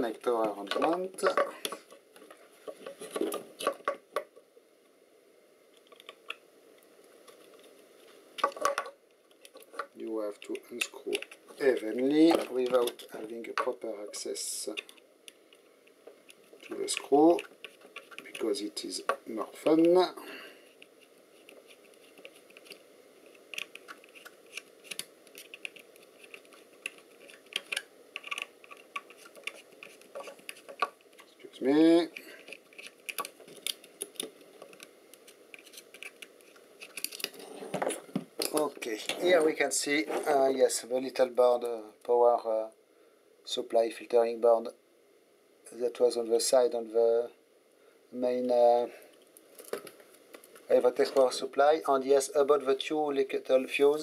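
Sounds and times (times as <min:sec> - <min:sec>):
screwdriver clicking and scraping: 0:16.6 - 0:18.5, 0:23.4 - 0:31.4.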